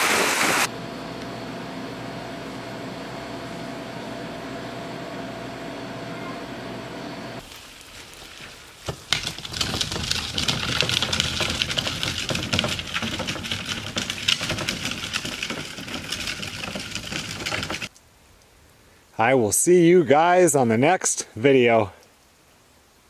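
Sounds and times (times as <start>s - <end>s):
steady indoor hum with tones: 0.7s - 7.4s
garbage can rolling over gravel: 7.4s - 17.9s.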